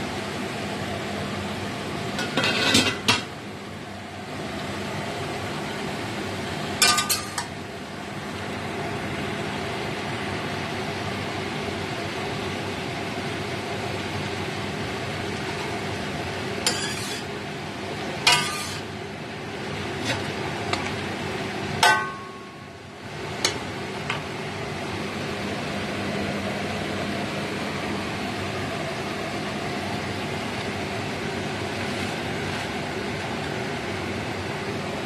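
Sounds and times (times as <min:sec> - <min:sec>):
steady hum and hiss: 0:00.0 - 0:35.0
utensil clanking on metal wok: 0:02.2 - 0:03.3, 0:06.8 - 0:07.6, 0:16.6 - 0:17.3, 0:18.2 - 0:18.9, 0:21.8 - 0:22.5.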